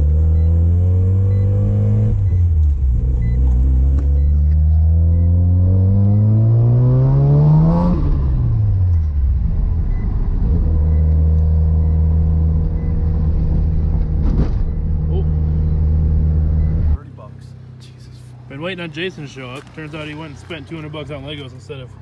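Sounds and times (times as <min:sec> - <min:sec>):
rotary engine accelerating: 0:00.0 - 0:17.0.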